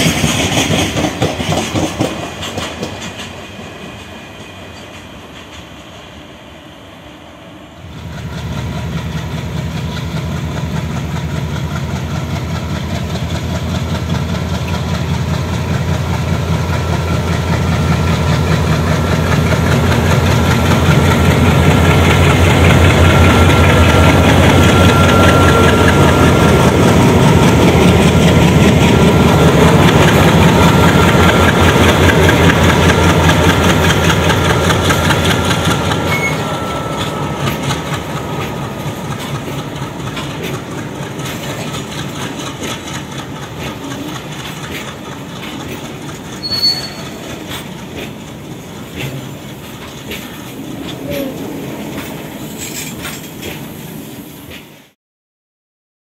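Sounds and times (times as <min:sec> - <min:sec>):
locomotive diesel engine running: 0:08.0 - 0:52.6.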